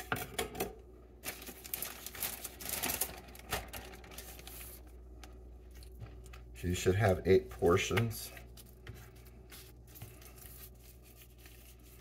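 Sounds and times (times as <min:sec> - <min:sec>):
plastic bag crinkling: 0:01.2 - 0:06.5.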